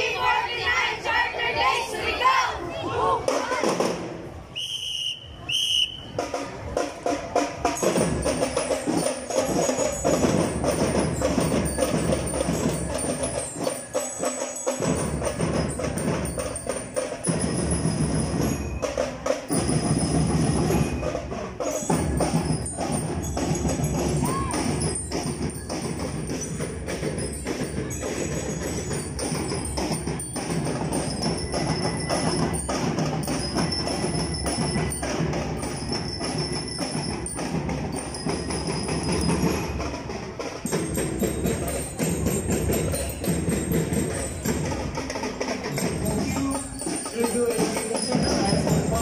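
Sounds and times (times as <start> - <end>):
drums beating: 0.0 - 4.6, 5.4 - 49.0
whistle blast: 4.4 - 6.3
bell lyres ringing: 7.6 - 49.0.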